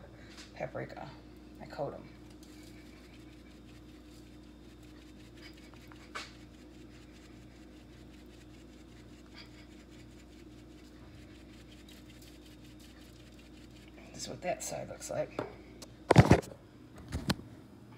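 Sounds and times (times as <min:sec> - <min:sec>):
low steady hum: 0:00.0 - 0:17.9
spice shaker rustling and tapping: 0:02.2 - 0:14.0.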